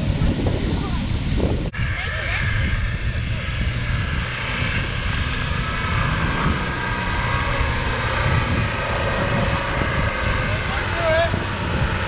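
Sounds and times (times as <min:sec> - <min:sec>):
engine driving through water: 0:00.0 - 0:12.0
wind buffeting microphone: 0:00.0 - 0:12.0.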